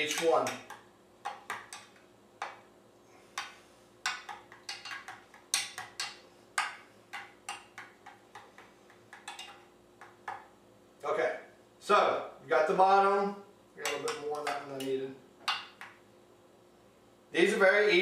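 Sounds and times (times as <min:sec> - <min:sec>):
spoon scraping metal muffin pan: 0:03.3 - 0:09.6.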